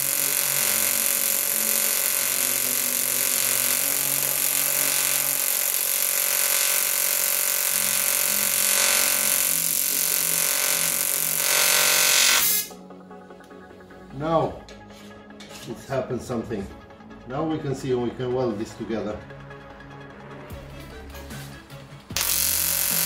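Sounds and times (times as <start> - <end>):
welder hum: 0.0 - 12.8, 22.2 - 23.0
welding arc hissing: 0.0 - 12.8, 22.2 - 23.0.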